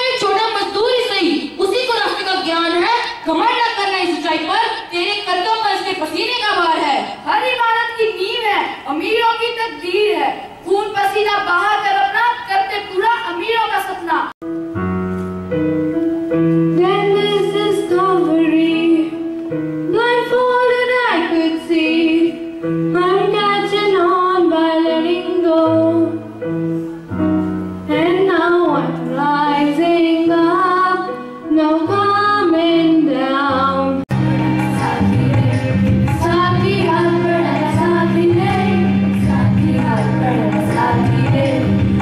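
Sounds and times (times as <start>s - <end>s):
instrumental accompaniment: 14.4s - 23.6s, 25.7s - 42.0s
girl singing into a microphone: 16.7s - 26.3s, 27.9s - 34.0s, 36.2s - 41.9s
children singing together: 34.1s - 42.0s.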